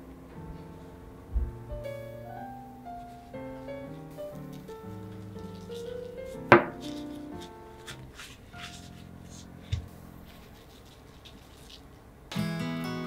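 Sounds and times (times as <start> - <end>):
quiet piano music: 0.0 - 13.0
shaker shaking and paper rustling: 3.0 - 12.1
shaker tapping: 4.4 - 11.8.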